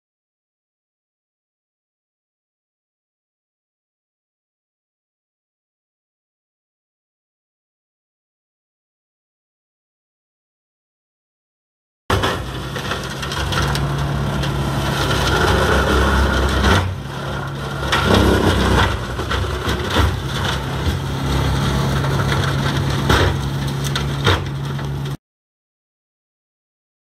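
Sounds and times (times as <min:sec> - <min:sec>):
flail mulcher shredding branches: 0:12.1 - 0:25.2
tractor engine running under load: 0:12.1 - 0:25.2
wood cracking: 0:12.1 - 0:25.2.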